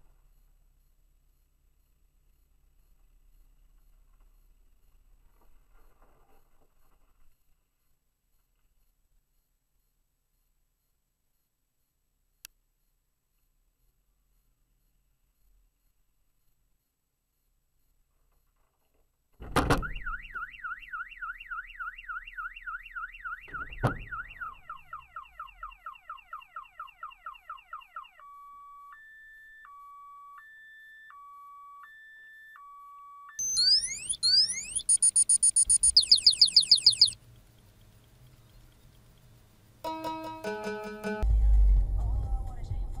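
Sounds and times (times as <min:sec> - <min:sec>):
thump: 0:19.4 - 0:20.1, 0:23.5 - 0:24.3
car alarm siren: 0:19.7 - 0:37.2.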